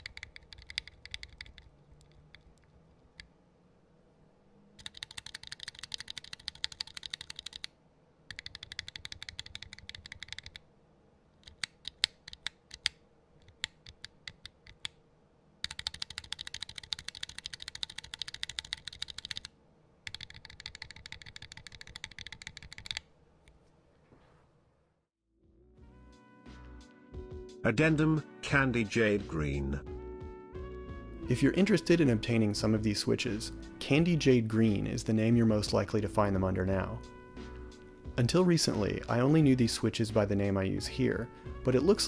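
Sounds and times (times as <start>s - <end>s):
keyboard keystrokes clacking: 0.0s - 2.6s, 4.8s - 7.7s, 8.3s - 10.6s, 15.6s - 19.5s, 20.1s - 23.0s.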